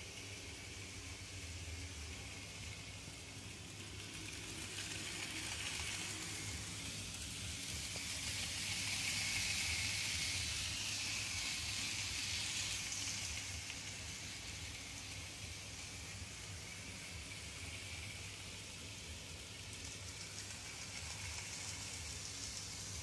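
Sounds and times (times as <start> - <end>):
model train whirring on rails: 0.0 - 23.0.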